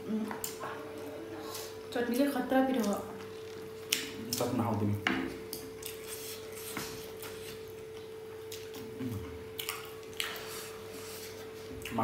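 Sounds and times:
faint steady hum: 0:00.0 - 0:12.0
chewing and slurping: 0:05.8 - 0:12.0.

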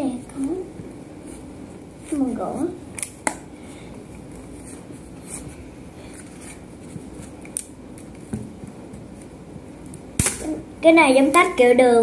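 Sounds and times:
sharp card snaps: 0:09.9 - 0:10.6.

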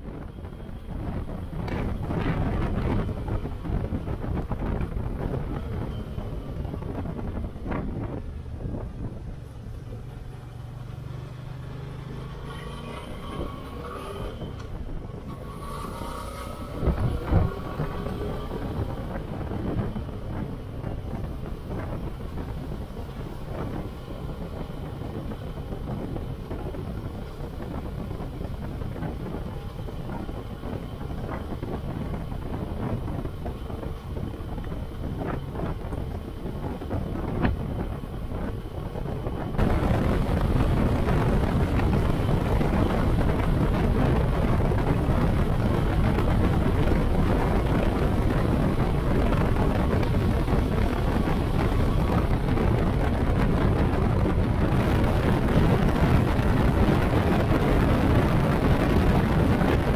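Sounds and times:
wind on microphone: 0:00.0 - 0:59.9.

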